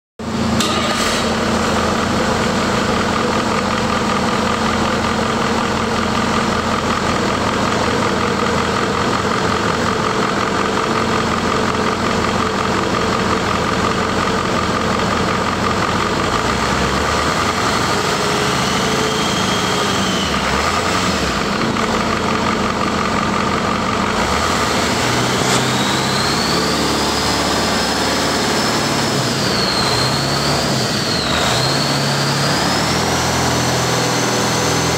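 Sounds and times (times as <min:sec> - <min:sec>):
diesel engine revving: 0:00.2 - 0:34.9
turbocharger whistle: 0:17.4 - 0:21.4, 0:24.2 - 0:34.9.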